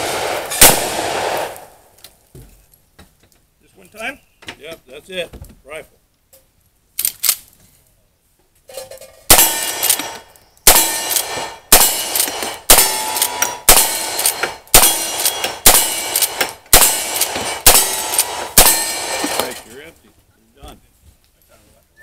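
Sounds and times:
rifle shots: 0:00.0 - 0:01.7, 0:09.3 - 0:19.6
steel target clanging: 0:08.7 - 0:19.8.

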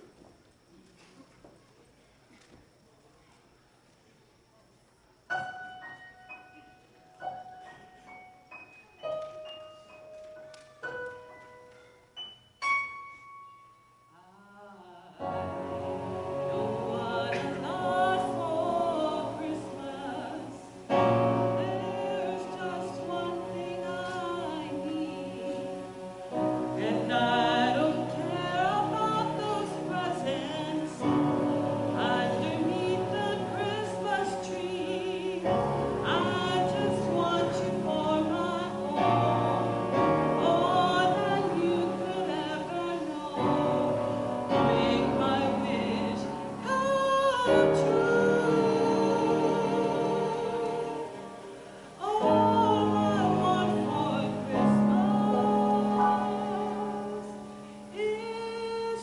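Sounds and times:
woman singing a hymn: 0:14.1 - 0:59.0.

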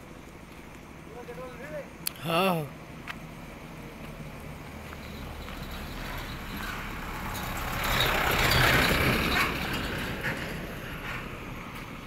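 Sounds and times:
motor vehicle passing: 0:03.3 - 0:12.0.

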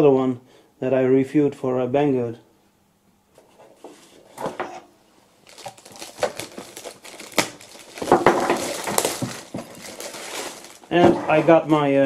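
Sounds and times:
plastic bag crinkling: 0:05.4 - 0:11.0.

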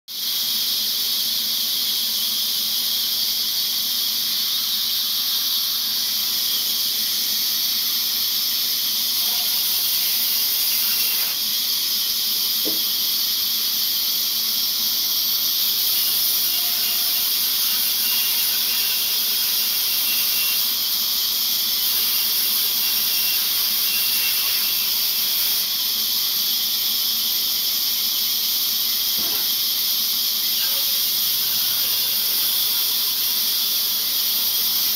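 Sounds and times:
band saw cutting wood: 0:09.0 - 0:11.7, 0:12.6 - 0:13.1, 0:15.7 - 0:21.0, 0:21.7 - 0:25.8, 0:29.2 - 0:29.6, 0:30.4 - 0:34.9.

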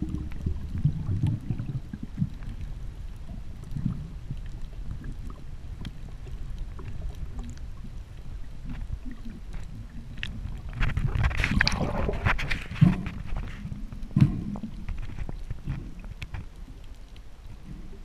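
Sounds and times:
muffled underwater rumble: 0:00.0 - 0:18.0
water splashing and bubbling: 0:00.0 - 0:18.0
faint clicks: 0:13.3 - 0:17.3.

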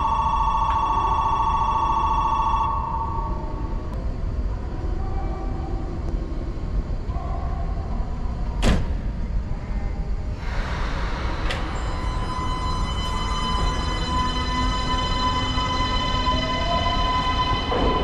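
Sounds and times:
low rumble of train: 0:00.0 - 0:18.0
train doors shutting thud: 0:08.6 - 0:09.2.

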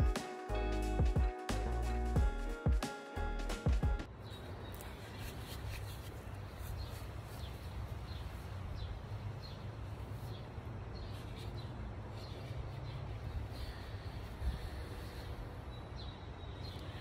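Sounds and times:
birds chirping: 0:04.0 - 0:17.0.

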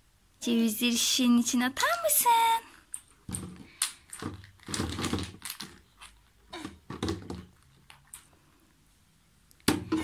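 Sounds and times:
walnuts clicking: 0:02.9 - 0:06.4
toddler vocalizing: 0:06.5 - 0:06.8.

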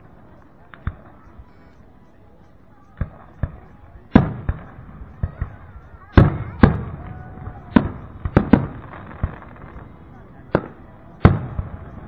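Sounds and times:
fireworks bursting: 0:03.0 - 0:12.0.

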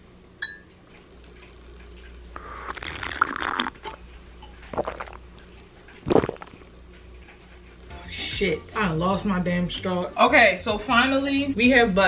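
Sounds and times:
slurping through a straw: 0:02.3 - 0:04.0, 0:04.6 - 0:06.8.

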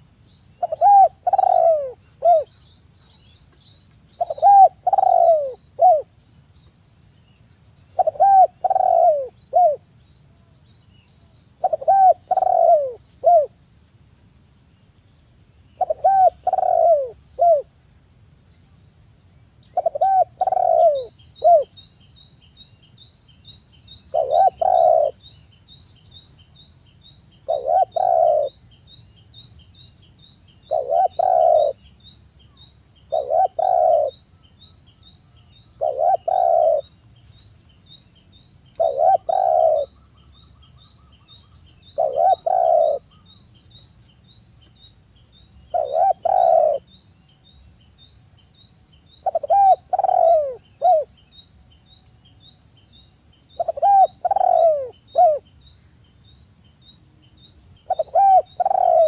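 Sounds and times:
dove cooing: 0:00.6 - 0:02.5, 0:04.2 - 0:06.1, 0:08.0 - 0:09.8, 0:11.6 - 0:13.6, 0:15.8 - 0:17.7, 0:19.8 - 0:21.7, 0:24.1 - 0:25.2, 0:27.5 - 0:28.6, 0:30.6 - 0:31.8, 0:33.1 - 0:34.2, 0:35.8 - 0:36.9, 0:38.8 - 0:40.0, 0:41.9 - 0:43.2, 0:45.7 - 0:46.9, 0:49.2 - 0:51.1, 0:53.6 - 0:55.4, 0:57.9 - 0:59.0.

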